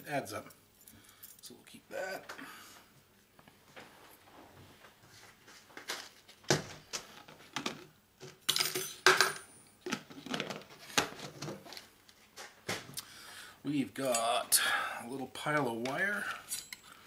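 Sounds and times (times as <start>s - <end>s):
metal scrap clinking: 16.4s - 17.0s.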